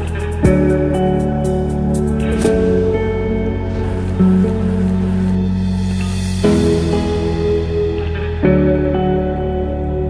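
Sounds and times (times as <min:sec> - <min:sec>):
music of sustained chords: 0:00.0 - 0:10.0.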